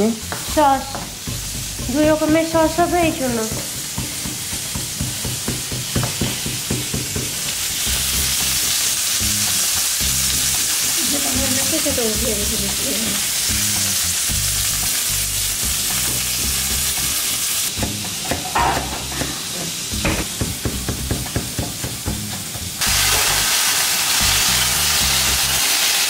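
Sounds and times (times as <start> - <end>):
meat sizzling in hot oil: 0.0 - 26.0
knife chopping on wooden board: 3.5 - 7.4, 17.7 - 22.4.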